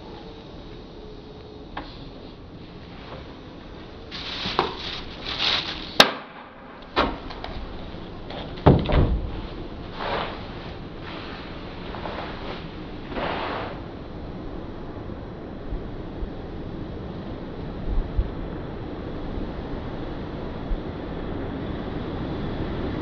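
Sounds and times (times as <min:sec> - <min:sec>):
rubbish rustling: 0:02.7 - 0:06.3.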